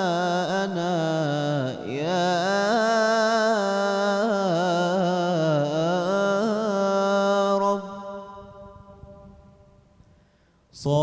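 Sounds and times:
man chanting melismatically: 0.0s - 8.8s, 10.7s - 11.0s.

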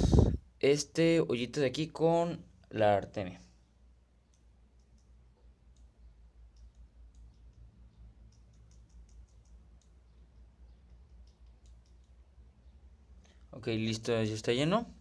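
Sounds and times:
light clicks of cysts shaken: 4.3s - 12.3s.

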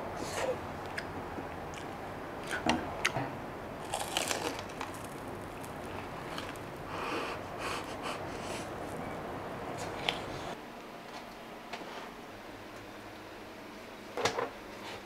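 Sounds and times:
crunching and chewing crispy food: 3.8s - 6.9s.

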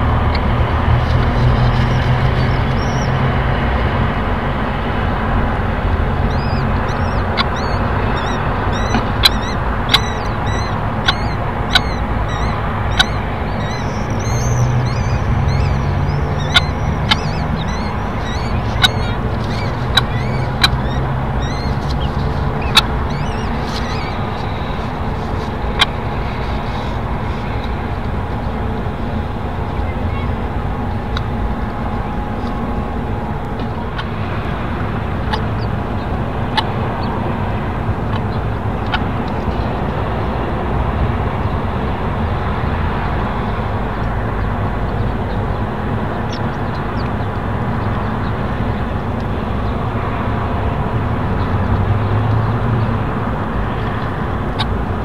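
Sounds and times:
traffic rumble: 0.0s - 55.0s
bird chick cheeping: 1.8s - 3.2s, 6.2s - 26.9s.

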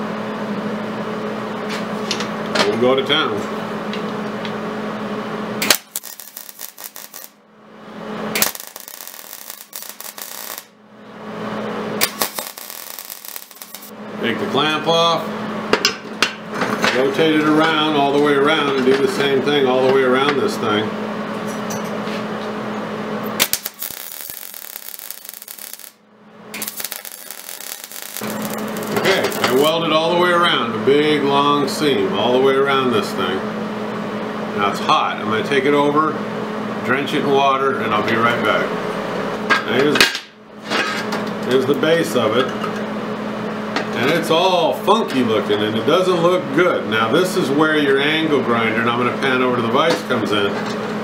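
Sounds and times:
steady hum: 0.0s - 39.5s
welding arc crackling: 5.6s - 7.4s, 8.2s - 10.8s, 12.0s - 14.0s, 23.3s - 29.8s.

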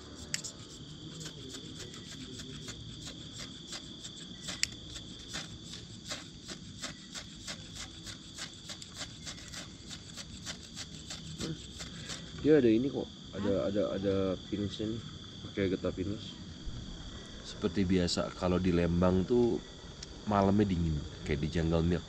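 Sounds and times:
crickets chirping: 0.0s - 22.0s
low background rumble: 16.5s - 21.7s.

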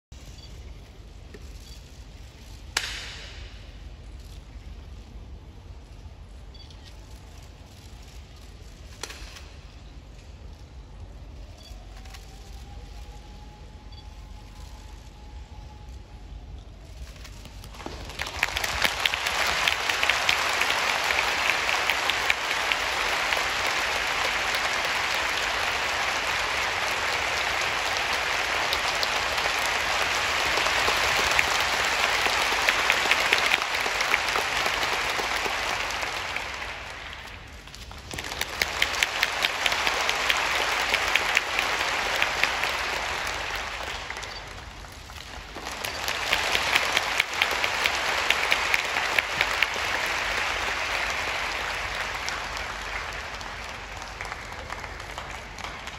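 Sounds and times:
large audience applauding: 17.2s - 55.9s.

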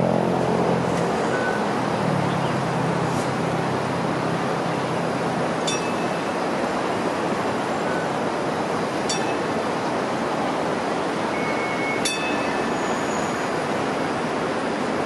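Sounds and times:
light rail rushing noise: 0.0s - 15.0s.

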